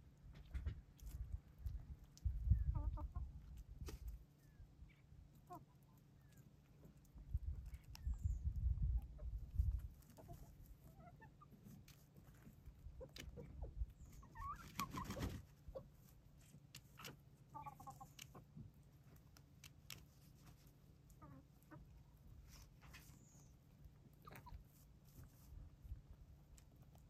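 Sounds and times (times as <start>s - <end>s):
chickens clucking: 0.2s - 27.0s
short chicken calls: 13.0s - 15.9s, 17.5s - 18.5s.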